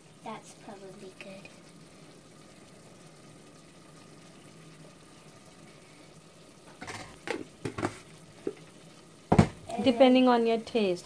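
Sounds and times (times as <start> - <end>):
food sizzling in a pot: 0.0 - 11.0
plastic containers knocking and clicking: 6.8 - 8.0, 9.3 - 9.6.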